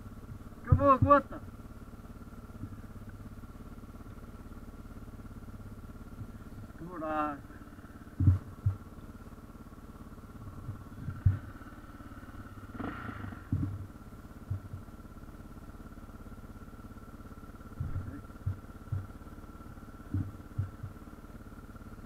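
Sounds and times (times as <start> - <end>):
motorcycle engine idling: 0.0 - 22.0
dull knocks: 8.2 - 8.9, 12.8 - 13.9, 20.0 - 21.0.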